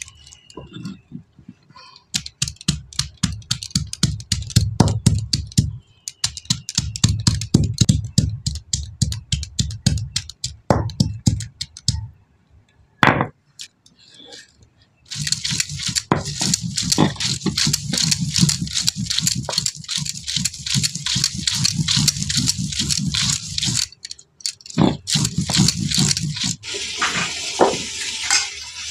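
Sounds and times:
stone pestle knocking on stone: 10.7 - 11.4.

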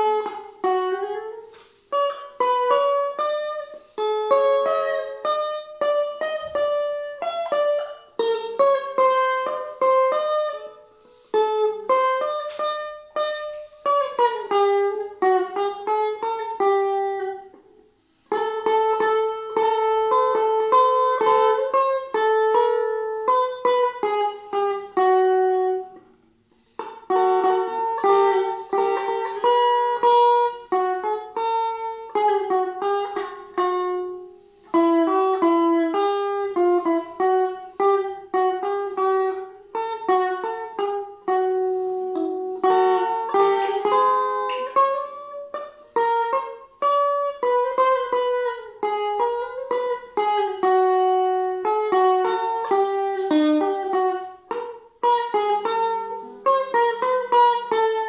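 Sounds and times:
electric guitar melody: 0.0 - 58.0.

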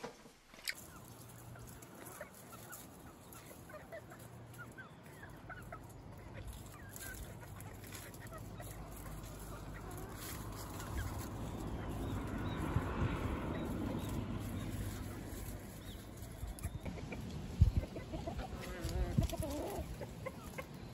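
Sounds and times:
chickens clucking softly: 0.1 - 20.9.

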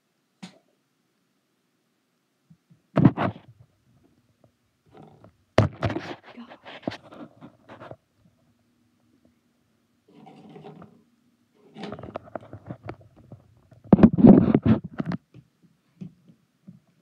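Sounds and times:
crutches thumping and knocking: 4.9 - 6.2.

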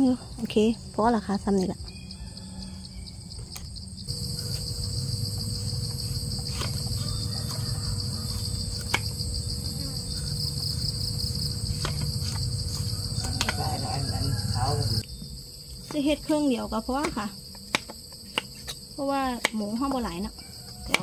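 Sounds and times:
insects chorus: 0.0 - 21.0
knife chopping on wooden board: 11.8 - 13.6, 17.0 - 18.8, 20.8 - 21.0.

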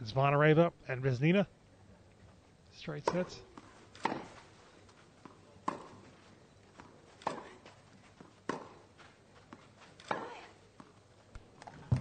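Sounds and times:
ball bouncing: 3.0 - 4.4, 5.2 - 6.0, 6.8 - 7.6, 8.2 - 8.8, 9.5 - 12.0
racket striking tennis ball: 3.0 - 4.5, 5.2 - 6.0, 6.8 - 8.9, 9.9 - 10.9
footsteps: 3.2 - 12.0.

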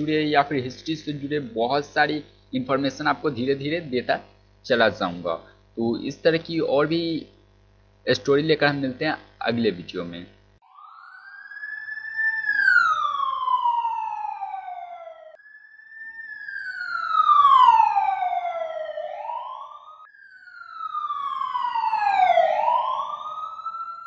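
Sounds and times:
falling whistle-like electronic tones: 10.6 - 24.0.

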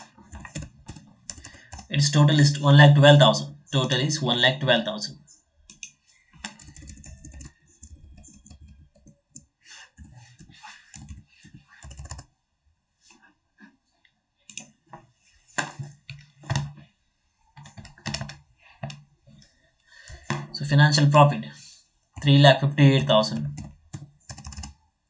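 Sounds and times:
computer keyboard typing: 0.0 - 2.6, 5.7 - 12.3, 16.5 - 16.8, 17.6 - 19.0, 23.0 - 24.8.

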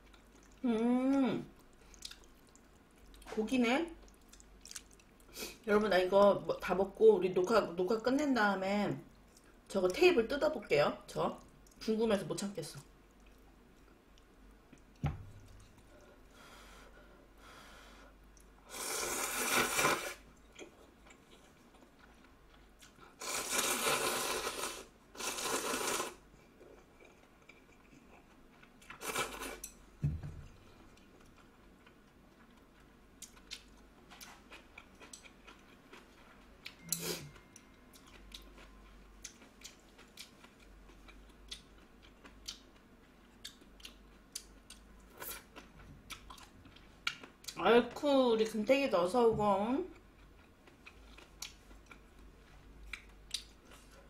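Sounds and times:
person slurping noodles: 18.7 - 20.2, 23.2 - 26.2.

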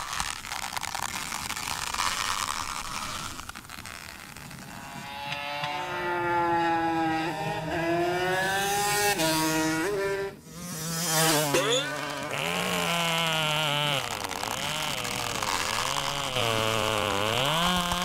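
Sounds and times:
vehicle engine accelerating: 4.6 - 18.0.

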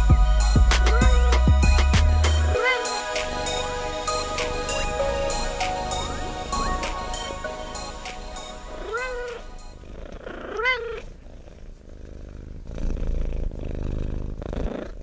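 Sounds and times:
background music: 0.0 - 9.8
cat meowing: 2.5 - 3.1, 8.7 - 9.5, 10.5 - 11.1
cat purring: 2.5 - 15.0.

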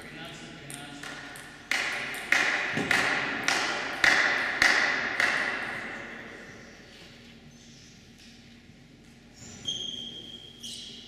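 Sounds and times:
table tennis ball bouncing: 0.7 - 5.6.

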